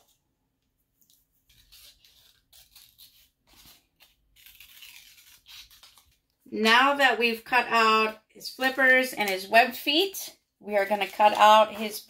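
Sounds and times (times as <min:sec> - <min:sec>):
scissors cutting paper: 0:01.4 - 0:06.2.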